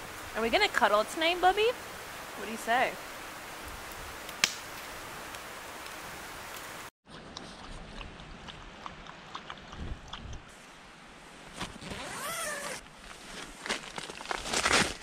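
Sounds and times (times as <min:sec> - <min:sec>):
campfire pop: 0:03.9 - 0:06.7.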